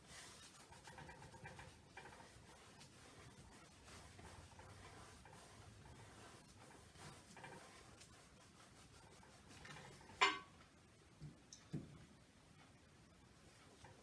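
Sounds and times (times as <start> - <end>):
paintbrush strokes on canvas: 0.0 - 10.2, 13.3 - 14.0.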